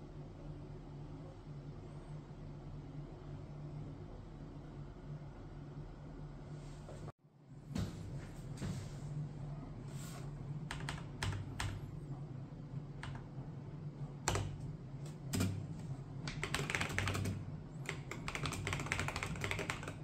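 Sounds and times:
mechanical keyboard typing: 0:10.7 - 0:11.8, 0:13.0 - 0:13.2, 0:14.2 - 0:20.0.

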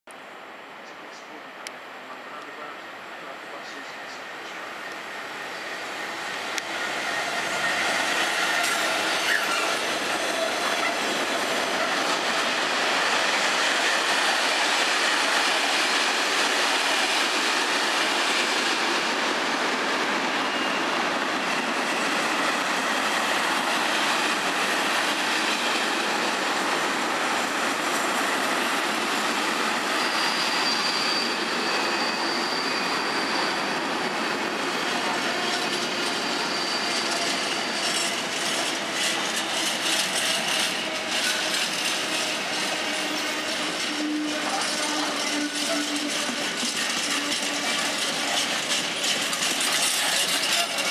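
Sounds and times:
diesel locomotive passing: 0:00.5 - 0:50.9
train wheels rolling on rails: 0:03.6 - 0:50.9
faint high wheel squeal: 0:07.1 - 0:11.0, 0:20.4 - 0:20.9, 0:29.8 - 0:50.9.

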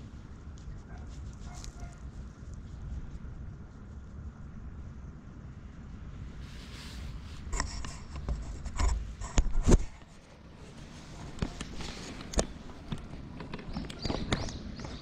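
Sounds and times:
clothing rustling against camera: 0:06.4 - 0:13.9.

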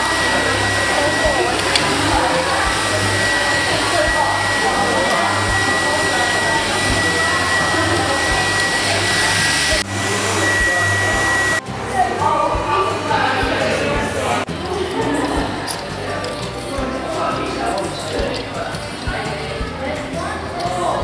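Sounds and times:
fan-like blowing machine with whine: 0:00.0 - 0:11.6
faint voices: 0:00.0 - 0:21.0.

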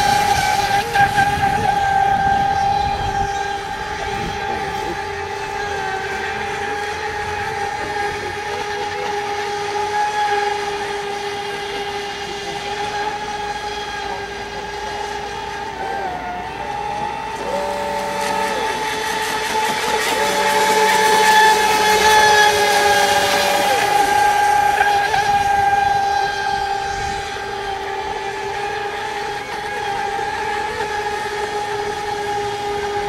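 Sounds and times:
model speedboat motor whining: 0:00.0 - 0:33.0
second boat motor lower tone: 0:00.0 - 0:33.0.

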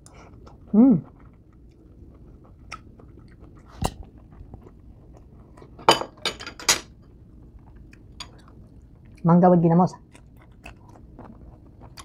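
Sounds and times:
crunchy chewing: 0:00.0 - 0:05.8, 0:10.0 - 0:12.0.

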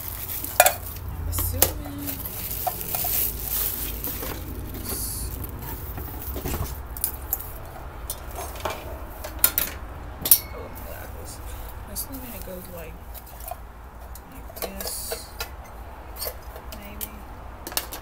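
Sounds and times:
metal pot clinking: 0:00.0 - 0:07.4, 0:08.1 - 0:11.1
plastic wrapping crinkling: 0:00.0 - 0:07.7.

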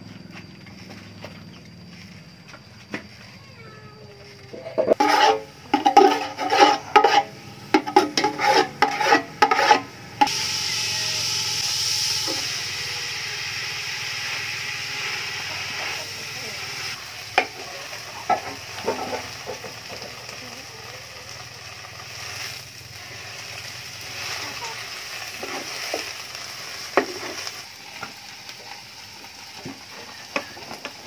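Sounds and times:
sizzling hiss from pot: 0:02.5 - 0:31.0
metal ladle scraping metal pot: 0:04.6 - 0:10.3.

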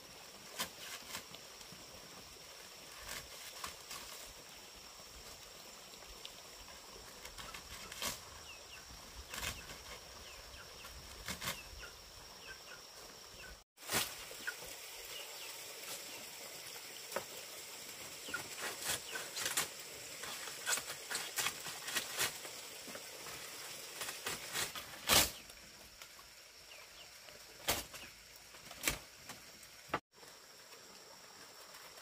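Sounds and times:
dry leaf thatch rustling: 0:00.4 - 0:01.4, 0:02.8 - 0:04.5, 0:07.1 - 0:11.9, 0:13.8 - 0:14.6, 0:18.2 - 0:25.6, 0:27.6 - 0:29.1
sharp snaps and knocks: 0:27.6 - 0:30.0.

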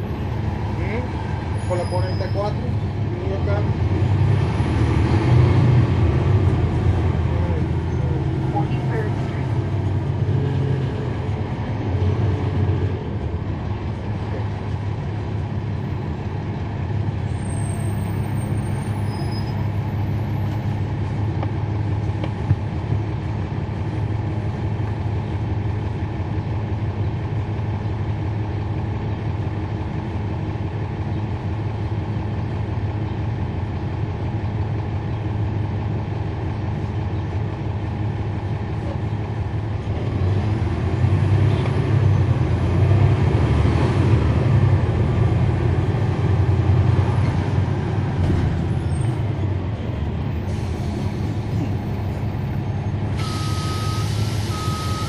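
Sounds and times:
bus diesel engine running: 0:00.0 - 0:55.0
faint high squeal: 0:17.3 - 0:19.7.

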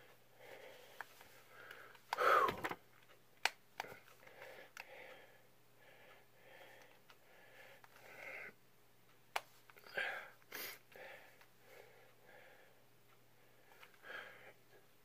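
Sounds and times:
man wheezy breathing: 0:01.5 - 0:02.7, 0:09.8 - 0:12.8, 0:14.0 - 0:14.7.

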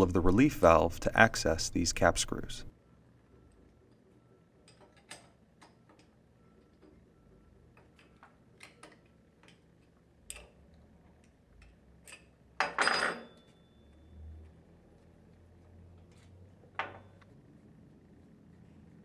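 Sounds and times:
wrench clattering on workbench: 0:12.1 - 0:13.6.

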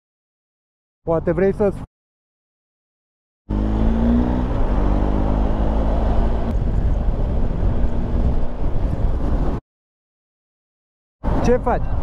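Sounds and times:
wind noise on microphone: 0:03.5 - 0:09.6, 0:11.2 - 0:12.0.

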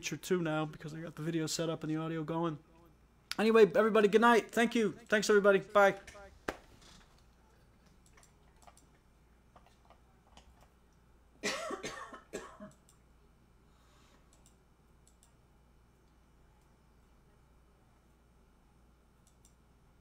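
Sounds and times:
person coughing: 0:11.4 - 0:12.7.

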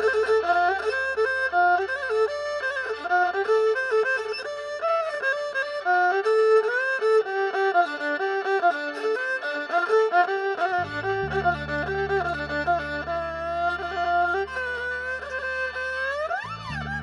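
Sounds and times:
folk instrumental ensemble music: 0:00.0 - 0:17.0
deep steady low tone: 0:10.8 - 0:14.8.

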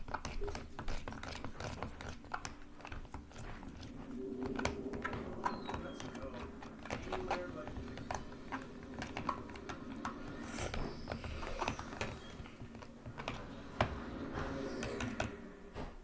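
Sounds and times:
plastic spoon scraping plastic tub: 0:00.0 - 0:03.9.

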